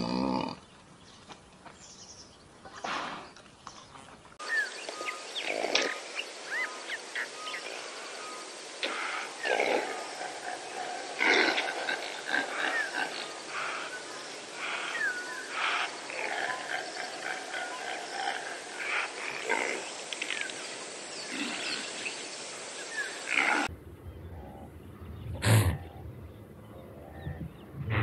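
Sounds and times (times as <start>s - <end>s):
antelope grunting calls: 0.0s - 0.7s, 7.6s - 20.5s, 21.2s - 22.1s, 23.2s - 28.0s
birds chirping faintly: 0.0s - 28.0s.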